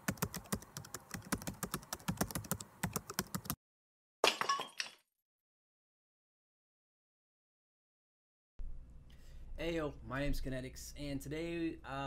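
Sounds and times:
keyboard typing clicks: 0.0s - 3.6s.

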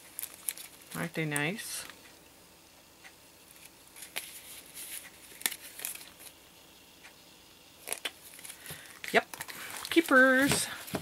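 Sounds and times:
card stock rustling: 3.6s - 6.3s, 7.8s - 11.0s.

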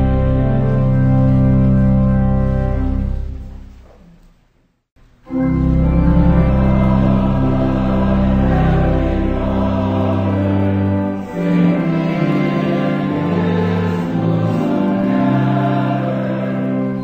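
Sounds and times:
choir singing a hymn: 5.8s - 17.0s.

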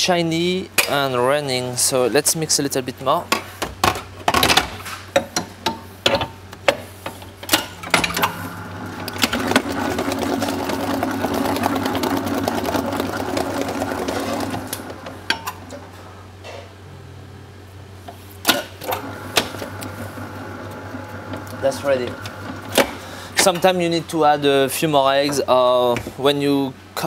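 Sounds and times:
stand mixer motor running: 7.8s - 15.3s, 18.9s - 23.4s.

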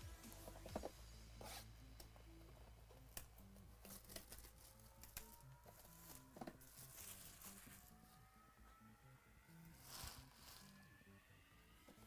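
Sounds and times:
soft background music: 0.0s - 12.0s
plastic wrap crinkling: 3.9s - 8.0s, 9.8s - 10.8s.

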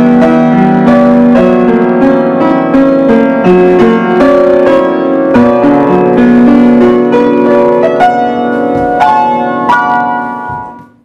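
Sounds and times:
solo piano slow melody: 0.0s - 11.0s.

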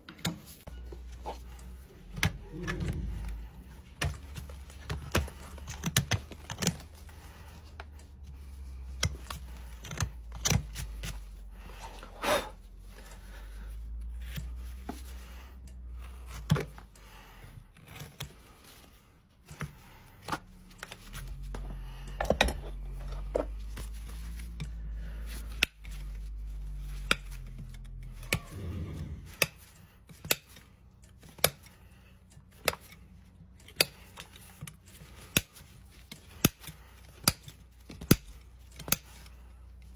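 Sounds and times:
hoof trimming snips and clicks: 19.4s - 39.9s.

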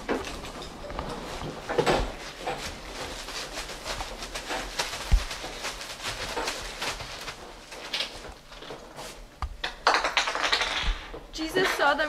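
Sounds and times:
soft knocks and rustles: 0.0s - 9.6s.

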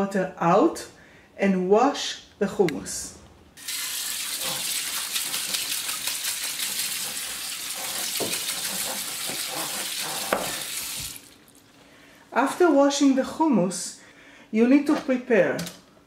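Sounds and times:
tap water running onto chickpeas: 3.6s - 11.6s.

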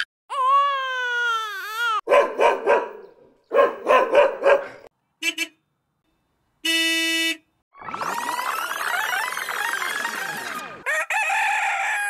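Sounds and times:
baby crying: 0.0s - 2.1s
dog barking: 2.1s - 4.9s
car horn honking: 5.2s - 5.6s, 6.6s - 7.6s.

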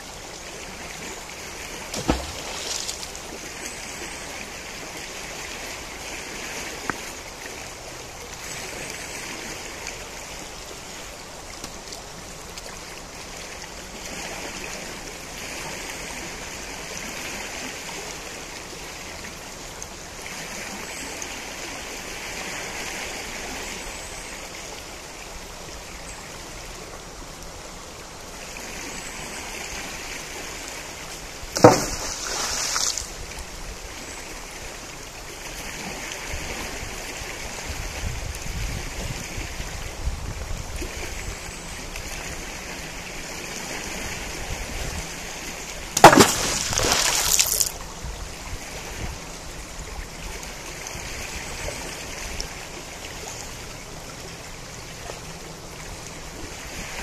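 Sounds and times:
river flowing: 0.0s - 57.0s
loud thump: 2.0s - 2.6s.

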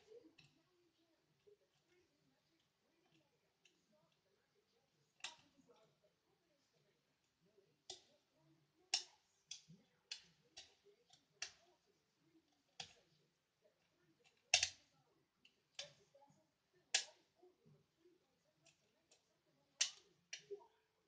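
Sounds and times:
lock pick metallic clicks: 14.5s - 14.8s.

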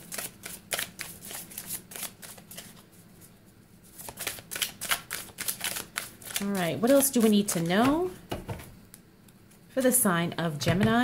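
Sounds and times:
cards being shuffled: 0.0s - 3.3s, 3.9s - 8.0s.

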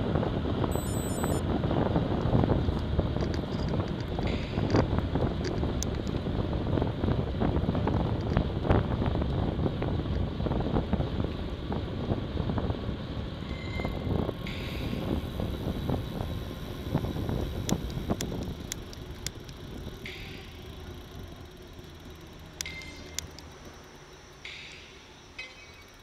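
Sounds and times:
wind buffeting microphone: 0.0s - 20.0s
tyres rumbling on road: 0.0s - 26.0s
bike clicks and rattles: 2.0s - 11.4s, 13.9s - 26.0s.

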